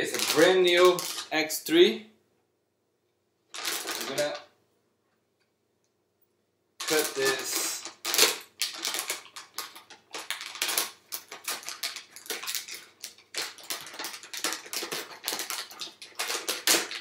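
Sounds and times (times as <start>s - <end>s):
foil bag crinkling: 0.0s - 1.5s, 3.5s - 4.5s, 6.8s - 17.0s.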